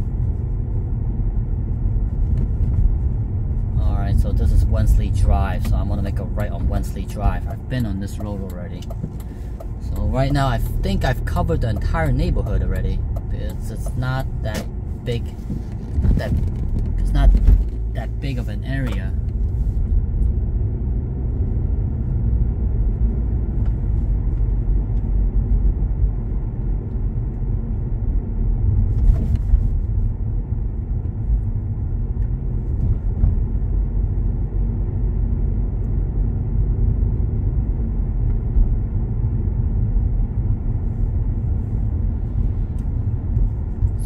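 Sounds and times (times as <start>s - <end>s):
car cabin road rumble: 0.0s - 44.0s.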